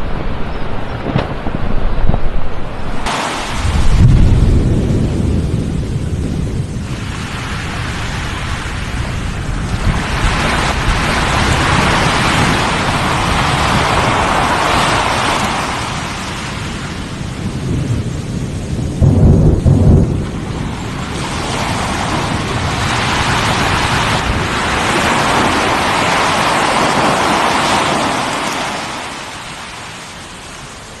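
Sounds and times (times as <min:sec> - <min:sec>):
deep explosive boom: 0:00.0 - 0:07.0, 0:17.5 - 0:20.5
long rushing hiss: 0:03.0 - 0:18.8.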